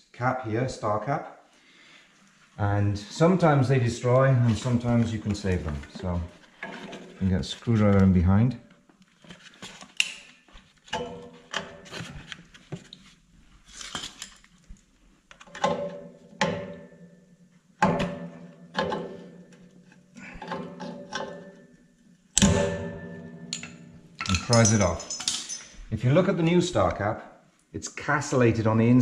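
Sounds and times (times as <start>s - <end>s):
metal clinks and scrapes: 22.9s - 25.9s.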